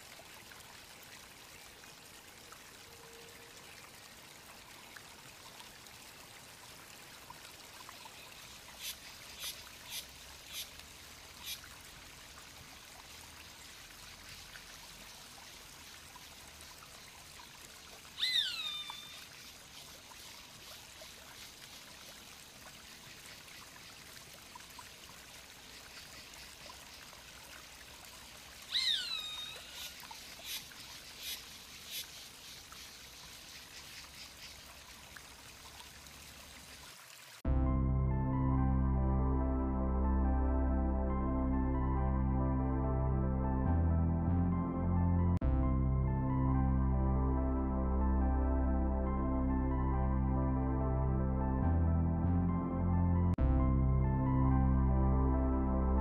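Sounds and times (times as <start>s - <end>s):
hawk screaming: 18.2s - 19.0s
steady hiss: 29.6s - 34.8s.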